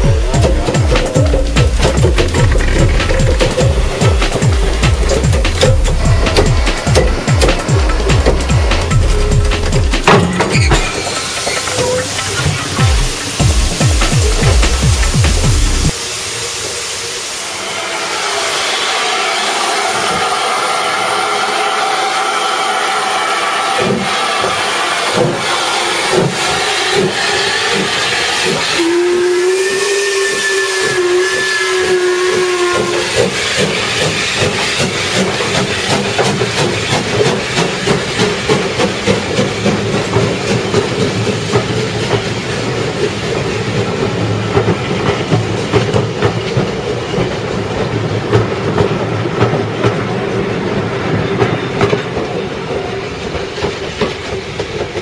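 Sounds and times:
train wheels clacking over rail joints: 0.0 - 16.0, 18.2 - 55.0
steam locomotive whistle: 0.0 - 41.0
steam locomotive hissing: 0.0 - 55.0.

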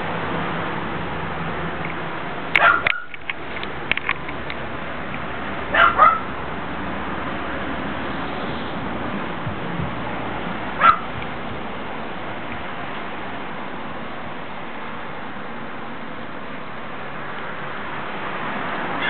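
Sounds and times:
steady background noise: 0.0 - 19.0
dog barking: 2.6 - 3.1, 5.7 - 6.3, 10.8 - 11.1.

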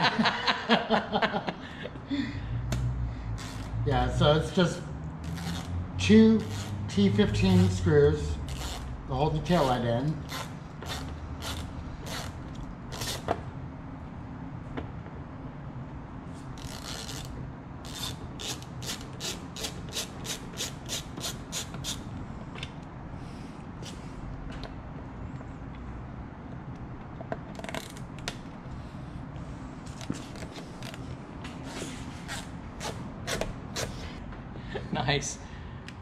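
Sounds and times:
hand and tool rubbing on lamp: 6.4 - 6.9, 9.5 - 13.2
ratcheting driver clicking: 9.6 - 13.3.

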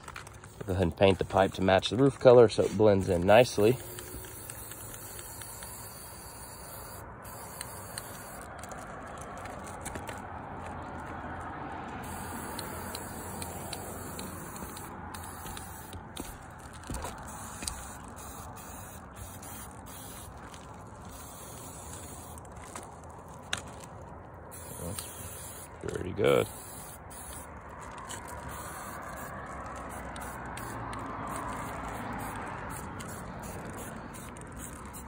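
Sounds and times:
spray-paint can hissing: 0.4 - 1.9, 2.6 - 8.8, 12.0 - 22.5, 24.5 - 25.8, 26.4 - 35.0.

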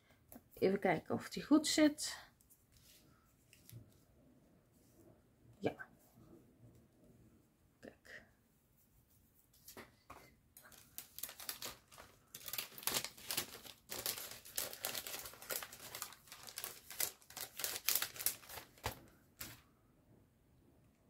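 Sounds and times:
paper and plastic crinkling: 10.6 - 19.6.

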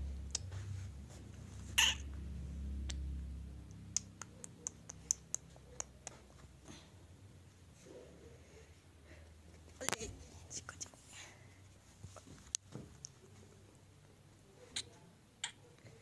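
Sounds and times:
puppy yelping: 1.8 - 2.1.

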